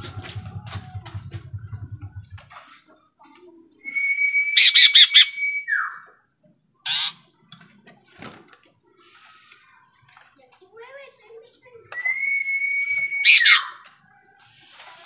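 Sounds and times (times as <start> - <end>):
songbird whistling call: 3.8 - 6.2, 11.7 - 14.8
bird harsh call: 4.6 - 6.0, 6.8 - 7.2, 13.2 - 13.8.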